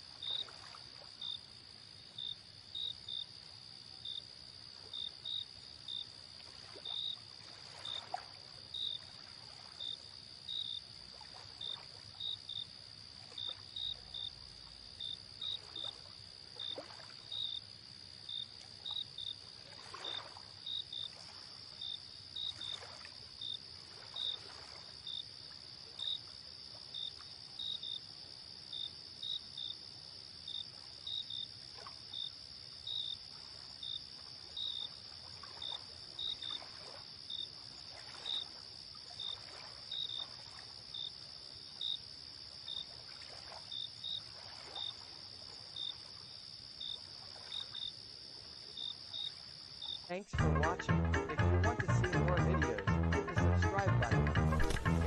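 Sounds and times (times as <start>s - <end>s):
crickets chirping: 0.0s - 50.3s
water lapping: 6.2s - 10.1s, 15.5s - 17.4s, 18.6s - 21.8s, 22.4s - 26.0s, 33.3s - 40.9s, 42.8s - 46.3s, 47.0s - 47.8s.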